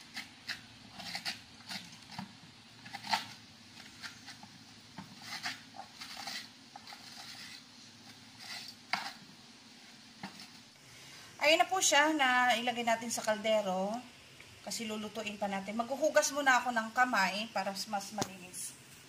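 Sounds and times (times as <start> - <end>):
spoon scraping fruit shell: 0.0 - 9.3.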